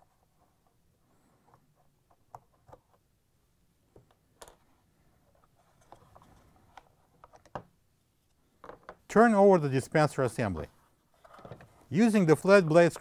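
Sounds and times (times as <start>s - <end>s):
soft handling rustle: 4.6s - 7.5s
plastic parts clicking and knocking: 5.8s - 7.8s, 8.6s - 9.1s.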